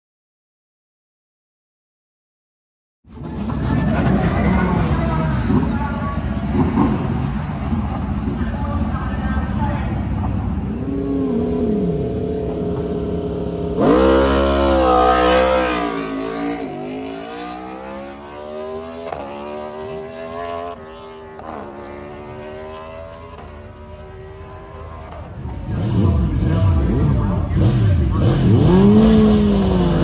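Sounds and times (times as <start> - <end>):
motorcycle engine accelerating: 10.6 - 30.0
quick gear upshifts: 25.1 - 30.0.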